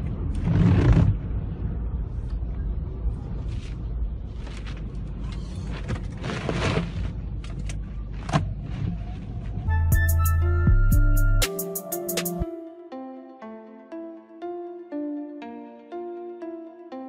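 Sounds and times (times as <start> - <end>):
wind buffeting a car: 0.0 - 9.8.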